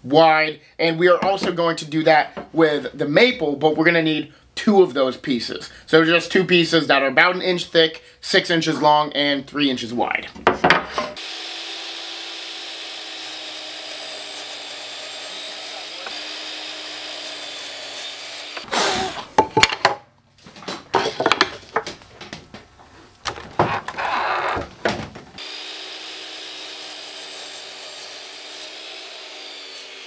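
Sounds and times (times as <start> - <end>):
wood boards knocking and rasping: 1.2 - 1.6, 20.7 - 22.7, 23.3 - 25.4
miter saw motor whine: 11.2 - 18.7, 25.4 - 30.0.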